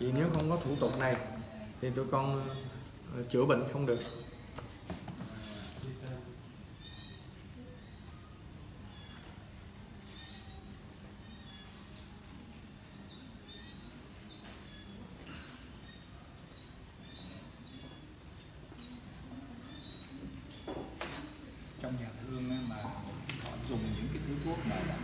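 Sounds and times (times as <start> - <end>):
small bird chirping: 5.5 - 25.0.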